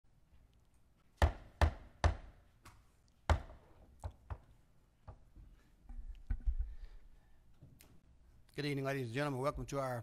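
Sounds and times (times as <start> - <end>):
sharp knocks: 3.3 - 4.4.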